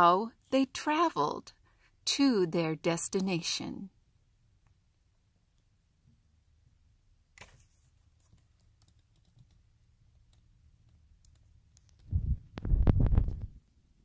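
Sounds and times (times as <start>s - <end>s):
phone microphone handling noise: 12.0s - 13.6s.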